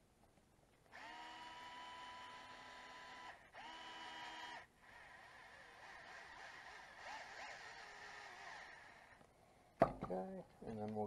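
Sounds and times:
electric screwdriver motor whining: 0:00.9 - 0:09.2.

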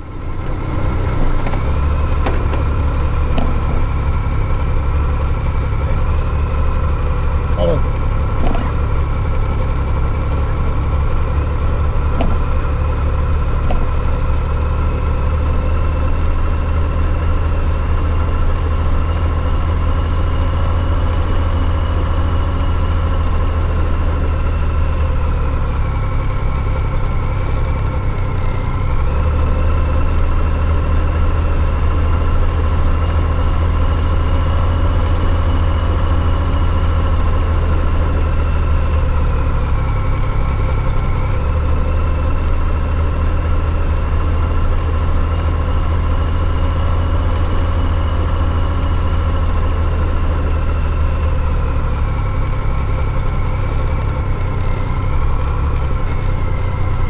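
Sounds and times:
motorcycle engine running: 0:00.0 - 0:57.0.

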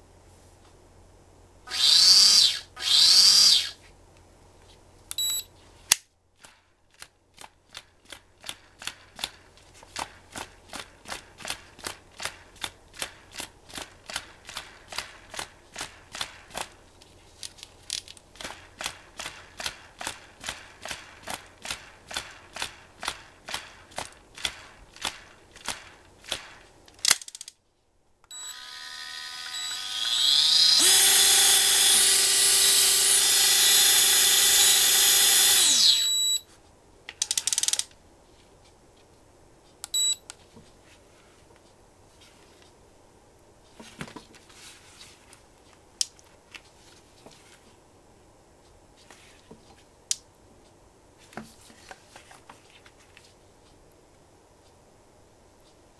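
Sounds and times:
reel spool clicking: 0:01.7 - 0:03.7, 0:28.4 - 0:36.4
electric reel motor whine: 0:01.7 - 0:03.8, 0:28.3 - 0:36.4.

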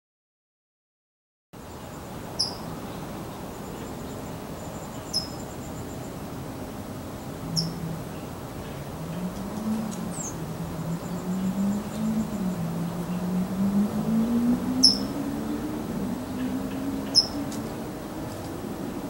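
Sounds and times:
songbird cheep calls: 0:01.7 - 0:06.3, 0:07.1 - 0:15.4, 0:16.2 - 0:17.8
faint insect trill: 0:03.5 - 0:06.2.

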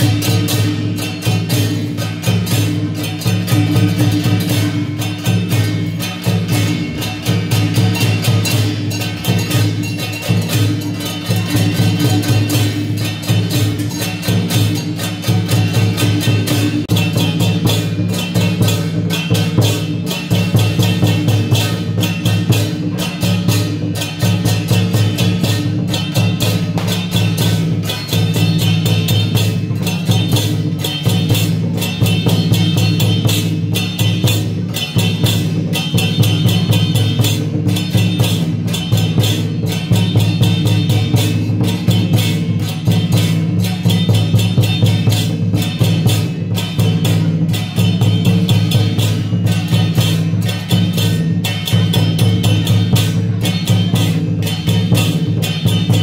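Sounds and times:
processional drum music: 0:00.0 - 0:56.0.

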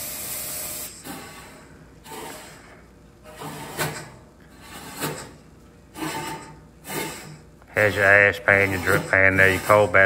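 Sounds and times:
metal grates scraping on rails: 0:03.3 - 0:10.0.

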